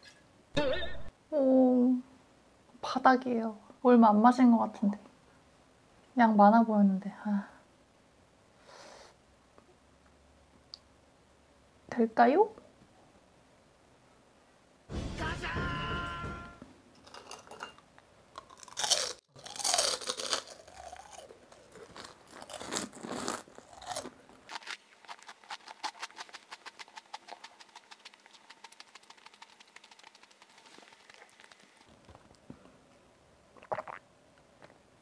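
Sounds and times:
sharp knock: 0:14.9 - 0:16.7
person chewing crunchy food: 0:18.3 - 0:31.9, 0:33.6 - 0:34.0.

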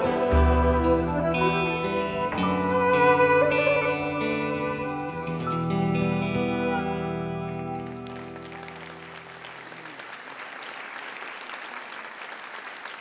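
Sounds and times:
audience applause: 0:06.8 - 0:13.0.

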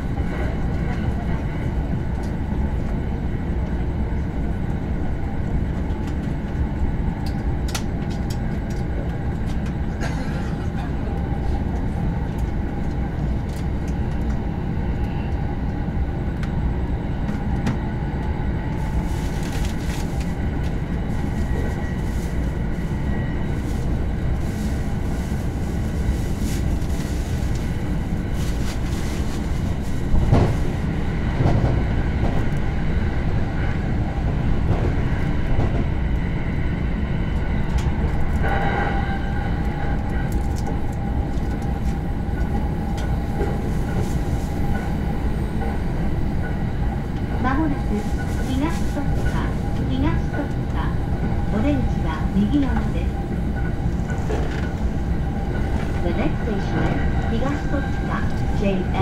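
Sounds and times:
train wheels rumbling on rail: 0:00.0 - 0:59.0
rail joint clacks: 0:37.3 - 0:59.0.

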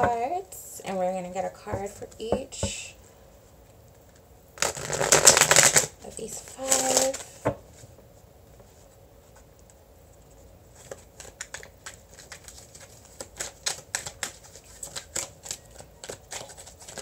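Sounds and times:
cards being shuffled: 0:04.0 - 0:07.9, 0:08.7 - 0:17.0.

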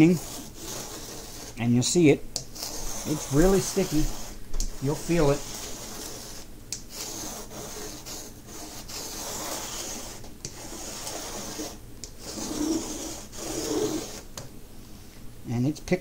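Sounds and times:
lint roller rubbing rasp: 0:00.0 - 0:01.6, 0:02.4 - 0:14.4.

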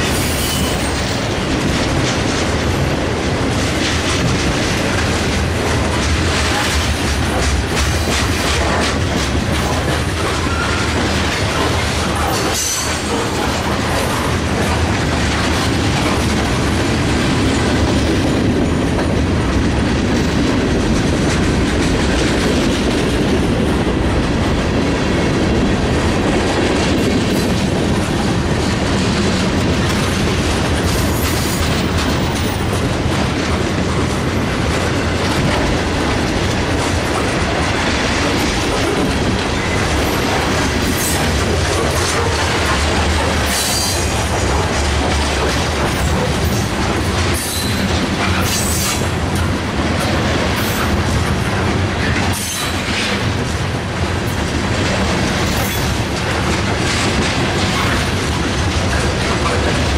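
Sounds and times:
freight train rumbling past: 0:00.0 - 0:59.9
wheels clicking over rail joints: 0:00.0 - 0:59.9.

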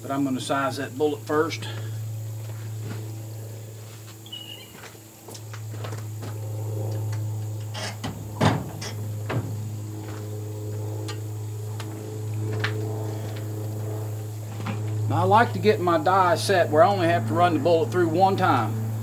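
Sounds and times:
low hum: 0:00.0 - 0:19.0
sharp knocks and clunks: 0:07.9 - 0:09.6.

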